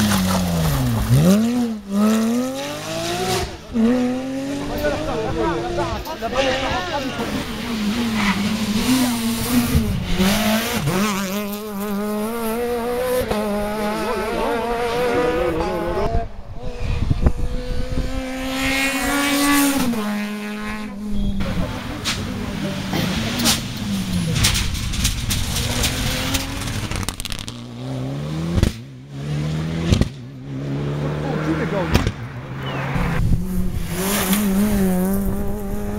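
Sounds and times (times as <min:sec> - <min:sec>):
rally car engine at high revs: 0:00.0 - 0:35.9
exhaust cracks: 0:21.4 - 0:27.8.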